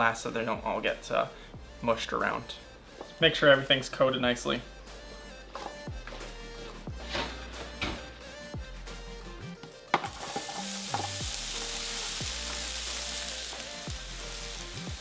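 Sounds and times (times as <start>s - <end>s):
light background music: 0.0s - 15.0s
food frying sizzle: 10.0s - 15.0s.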